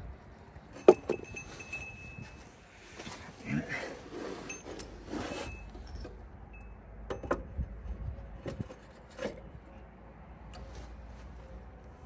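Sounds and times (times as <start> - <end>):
light metal clinks and knocks: 0.7 - 2.5, 4.4 - 7.6.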